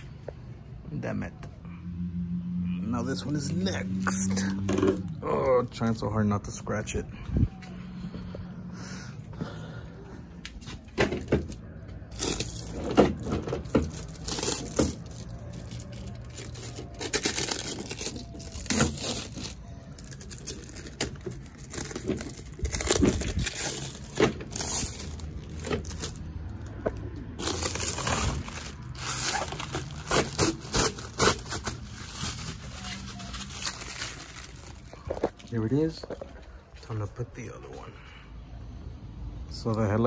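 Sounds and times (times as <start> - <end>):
plastic wrapping crinkling: 10.6 - 36.5.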